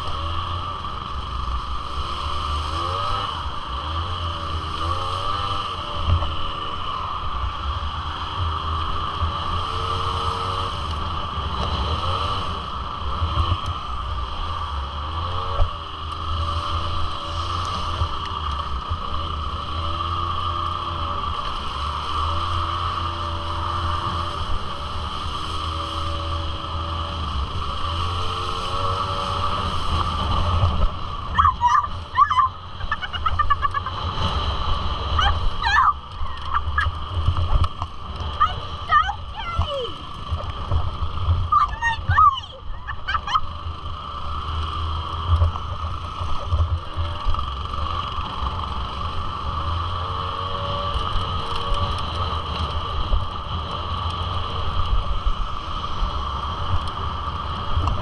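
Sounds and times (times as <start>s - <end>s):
two-stroke quad engine revving: 0.0s - 58.0s
short high falling calls: 31.3s - 34.0s, 35.2s - 37.0s, 41.5s - 43.6s.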